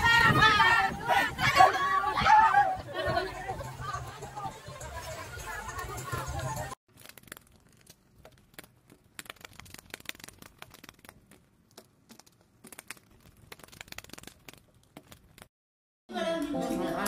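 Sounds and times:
crayfish clicking and scraping: 0:06.9 - 0:15.5.

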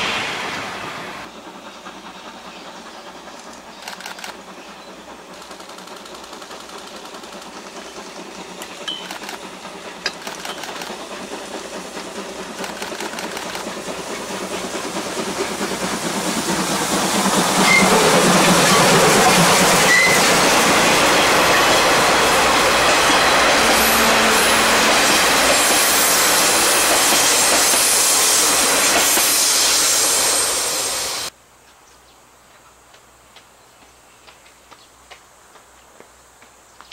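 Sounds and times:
steam locomotive approaching: 0:00.0 - 0:31.4
wheels on rails: 0:01.2 - 0:29.4.

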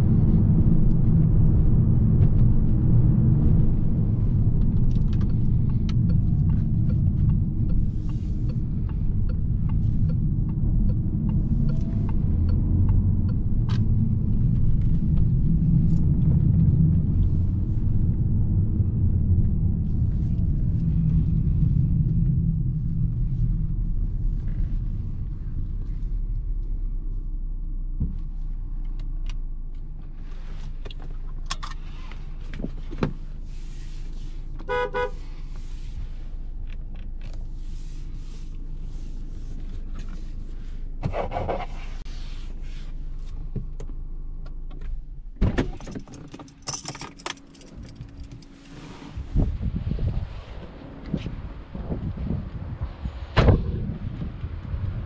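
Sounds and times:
engine and road rumble: 0:00.0 - 0:55.0
loud thump: 0:53.3 - 0:53.8.

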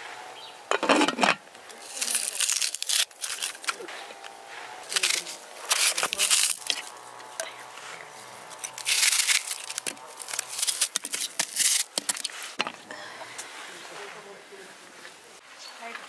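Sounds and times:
knife crunching through onion: 0:01.8 - 0:04.0, 0:04.8 - 0:07.4, 0:08.4 - 0:12.6.

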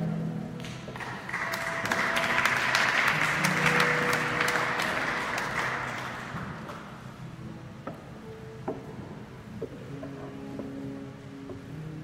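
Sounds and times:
audience applauding: 0:00.6 - 0:07.0.

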